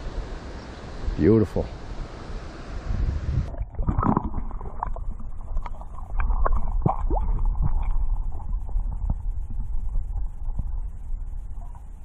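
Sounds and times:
creek water flowing: 0.0s - 12.0s
underwater creek rumbling and gurgling: 3.0s - 12.0s
underwater clicks and pops: 3.5s - 9.2s.

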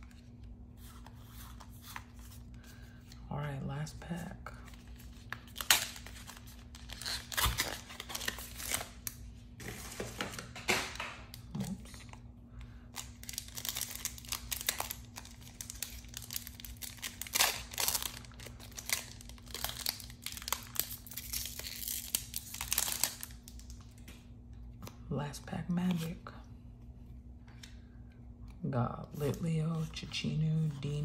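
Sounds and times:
foil wrapper tearing and crinkling: 4.9s - 10.0s, 13.0s - 23.8s.

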